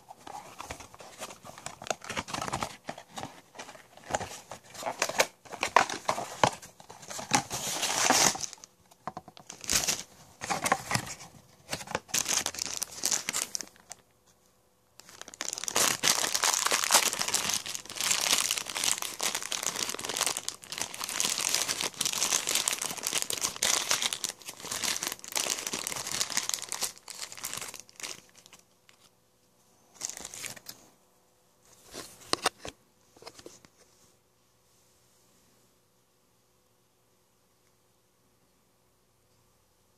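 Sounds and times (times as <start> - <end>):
foil bag crinkling: 12.0 - 14.0, 15.0 - 28.6.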